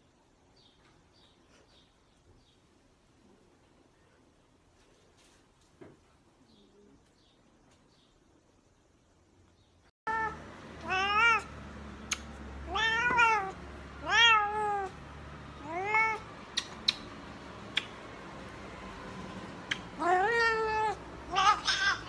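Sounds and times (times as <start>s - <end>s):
cat meowing: 10.1s - 11.5s, 12.6s - 15.0s, 15.6s - 16.3s, 19.8s - 22.0s.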